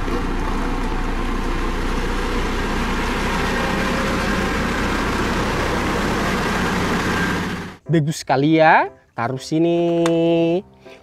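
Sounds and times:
road roller diesel engine humming: 0:00.0 - 0:07.8.

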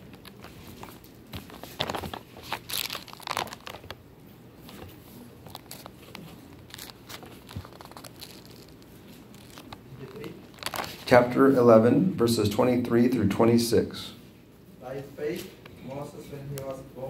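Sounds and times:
paper pages rustling: 0:00.0 - 0:04.0, 0:04.6 - 0:11.1.

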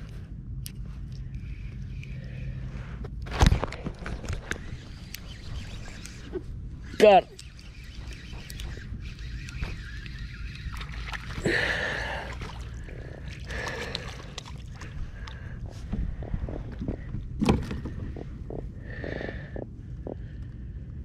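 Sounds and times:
knocks and clatter on hull: 0:15.9 - 0:19.2.

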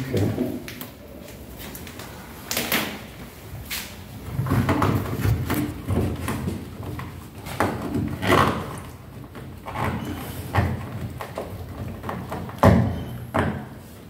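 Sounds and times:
strip rubbing and knocking: 0:04.3 - 0:13.7.

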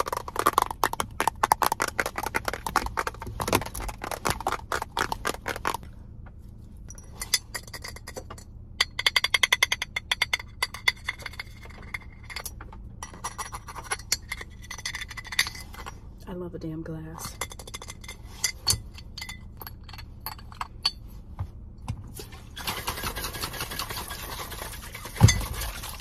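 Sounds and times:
rapid tapping: 0:00.0 - 0:05.8.

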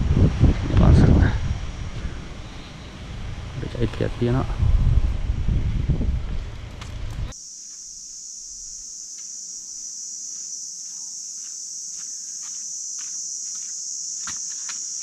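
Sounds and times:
insects droning: 0:00.0 - 0:15.0
footsteps on sandy path: 0:09.0 - 0:15.0.

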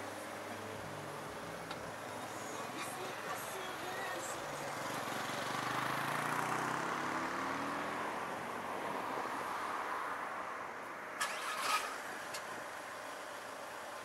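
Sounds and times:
vehicle engine: 0:00.0 - 0:10.3, 0:10.9 - 0:14.0
road and wind noise: 0:00.0 - 0:14.0.

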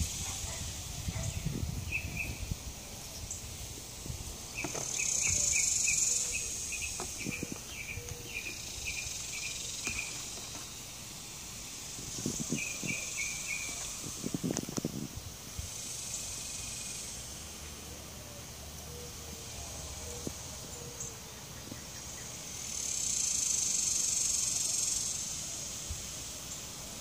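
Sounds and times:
short high insect chirps: 0:00.0 - 0:15.0
high insect buzz: 0:00.0 - 0:17.9, 0:18.5 - 0:27.0
microphone handling thumps: 0:04.6 - 0:08.6.

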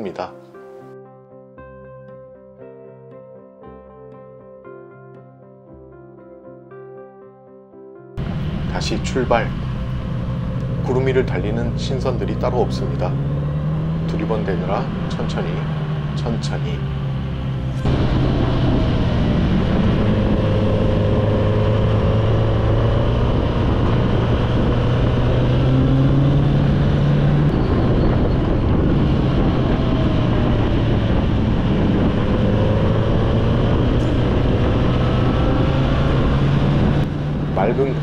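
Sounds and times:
motorcycle engine running: 0:08.2 - 0:38.0
wind noise: 0:08.2 - 0:38.0.

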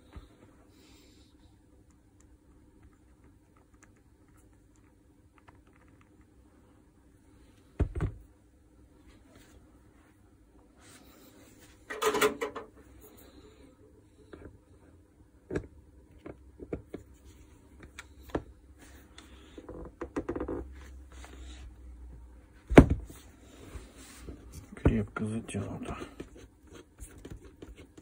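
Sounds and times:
metal parts rattling on bench: 0:11.9 - 0:12.7
clicks and knocks: 0:11.9 - 0:12.8.

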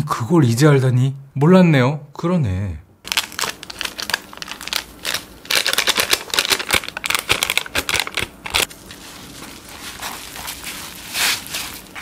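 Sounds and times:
foil sachets tearing and crinkling: 0:03.1 - 0:12.0.

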